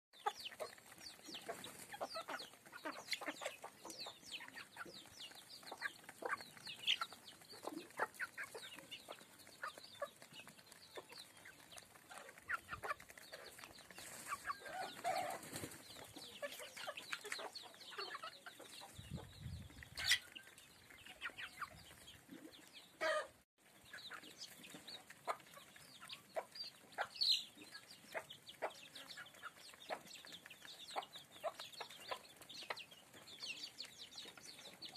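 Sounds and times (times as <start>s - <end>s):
beaks tapping on concrete: 0.2s - 21.9s
chickens clucking: 0.2s - 34.9s.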